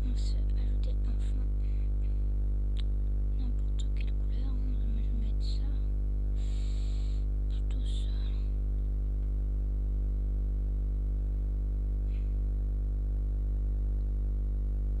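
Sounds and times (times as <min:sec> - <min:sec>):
soft hiss: 0:00.0 - 0:10.1
electrical mains hum: 0:00.0 - 0:15.0.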